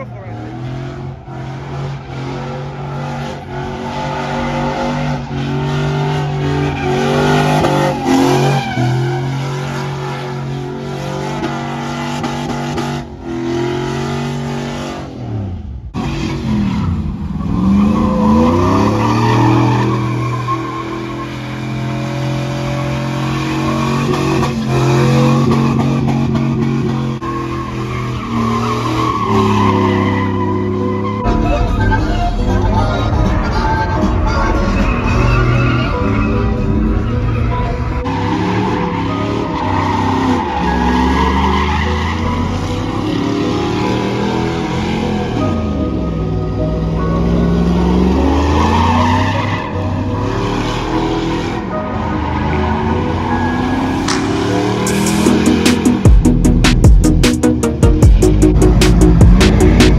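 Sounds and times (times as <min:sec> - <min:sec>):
truck engine revving: 0:00.0 - 0:59.9
tyres squealing: 0:27.2 - 0:43.8.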